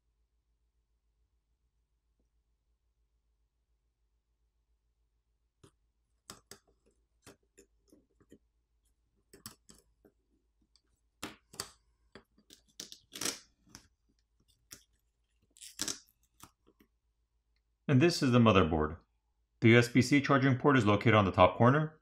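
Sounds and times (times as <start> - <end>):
clicks and taps of electronic parts: 5.6 - 8.4, 9.3 - 10.2.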